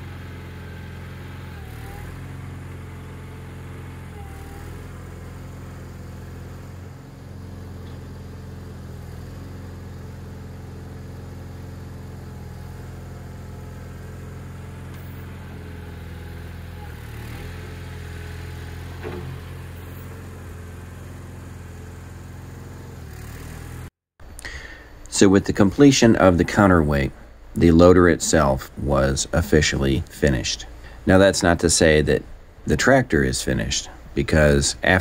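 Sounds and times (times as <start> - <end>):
tractor engine running: 0.0 - 35.0
single clunk: 19.0 - 19.5.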